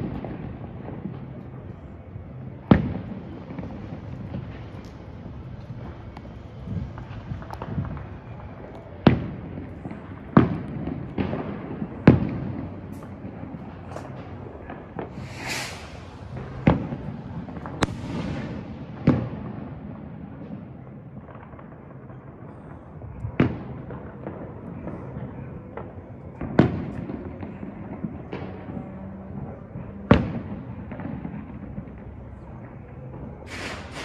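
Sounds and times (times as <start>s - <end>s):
distant firework crackle: 0.0s - 34.0s
firework bangs: 0.0s - 34.0s
firework hiss: 15.0s - 19.2s, 33.4s - 34.0s.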